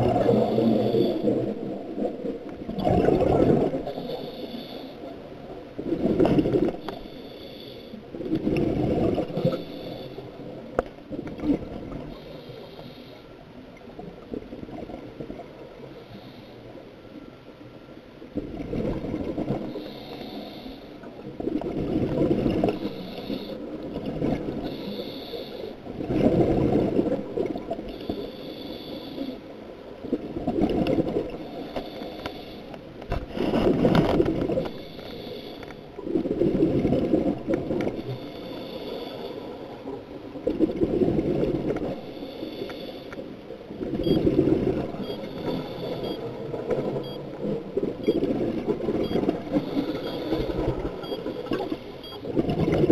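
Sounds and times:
bubbling gurgling exhale: 0.0s - 4.4s, 8.2s - 9.6s
regulator hissing inhale: 0.3s - 1.4s, 3.9s - 5.1s, 6.8s - 8.1s, 9.3s - 10.4s, 12.1s - 13.3s, 19.7s - 21.1s, 22.7s - 23.7s, 24.6s - 25.8s, 27.9s - 29.5s, 31.4s - 32.8s, 34.7s - 35.9s, 38.0s - 39.7s, 42.0s - 43.4s, 45.1s - 46.2s, 49.5s - 50.6s.

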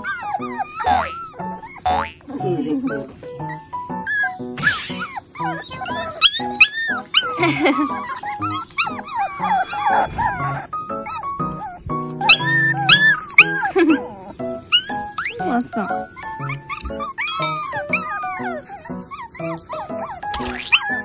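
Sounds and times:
puppies whimpering: 0.0s - 21.0s
soft background music: 0.0s - 21.0s.

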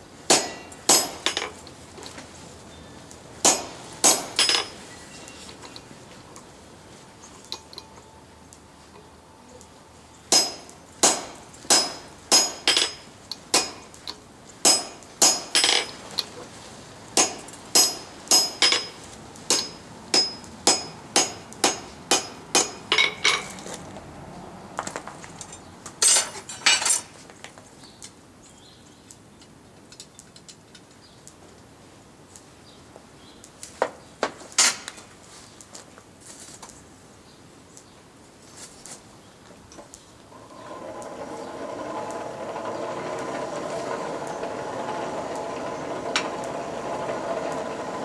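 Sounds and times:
hammer striking hot steel on anvil: 0.3s - 1.6s, 3.4s - 4.8s, 10.3s - 14.0s, 14.6s - 16.0s, 17.2s - 23.6s.

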